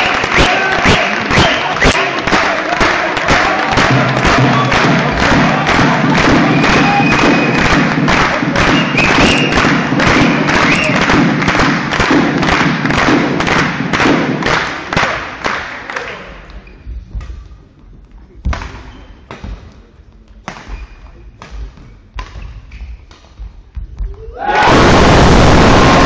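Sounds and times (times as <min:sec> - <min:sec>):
crowd clapping in rhythm: 0:00.0 - 0:16.5
rackets hitting shuttlecock: 0:20.4 - 0:24.3.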